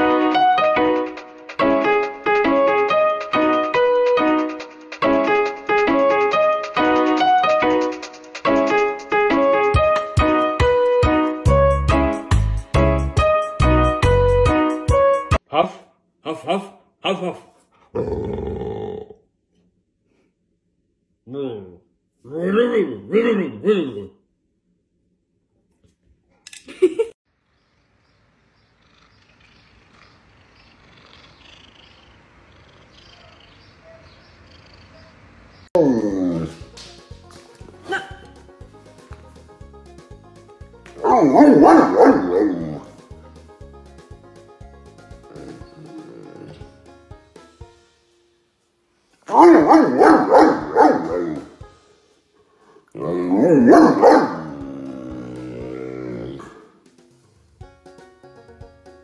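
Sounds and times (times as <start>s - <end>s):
cat purring: 28.8s - 33.6s
dog howling moans: 35.8s - 36.6s, 45.2s - 46.8s, 53.0s - 56.7s.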